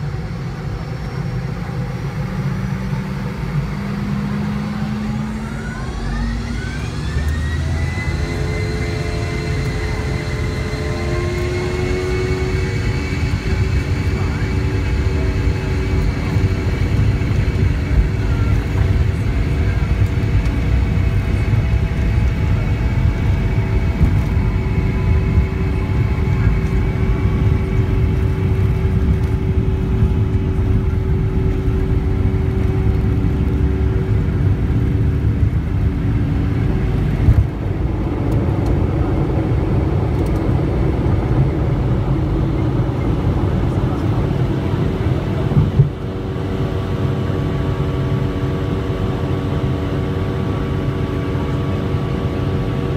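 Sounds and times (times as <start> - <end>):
jet engines roaring at takeoff: 0.0 - 52.9.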